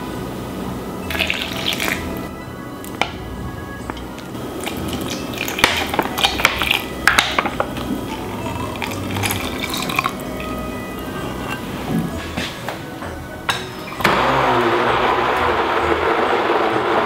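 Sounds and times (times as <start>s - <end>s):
juice pouring: 1.1s - 2.2s, 4.4s - 11.6s.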